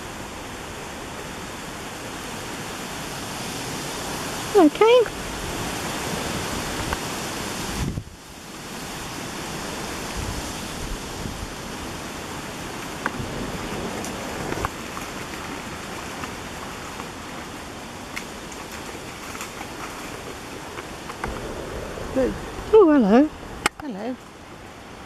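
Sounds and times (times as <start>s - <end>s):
outdoor rushing noise: 21.1s - 25.0s.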